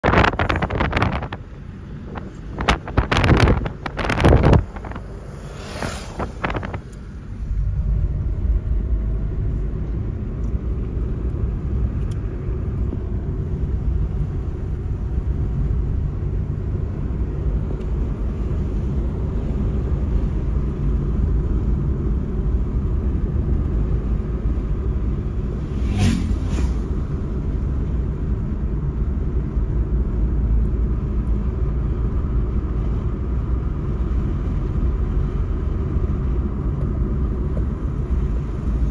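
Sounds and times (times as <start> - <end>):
gusty wind noise: 0.0 - 9.4, 24.4 - 28.6
vehicle road and engine rumble: 0.0 - 38.9.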